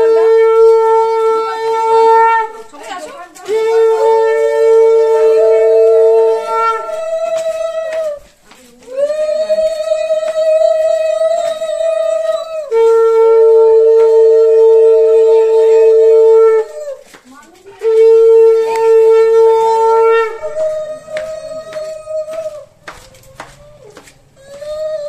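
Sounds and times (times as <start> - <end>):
conch shell blasts: 0.0 - 2.7, 3.5 - 8.2, 12.7 - 16.9, 17.8 - 22.7.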